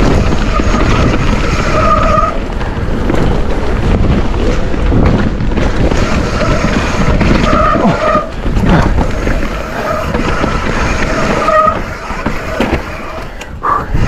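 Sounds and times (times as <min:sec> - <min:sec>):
brake squeals: 0:00.0 - 0:02.5, 0:05.8 - 0:08.4, 0:09.0 - 0:13.5
tyre roar on wet ground: 0:00.0 - 0:13.9
bike rattling over bumps: 0:00.0 - 0:14.0
wind on microphone: 0:00.0 - 0:14.0.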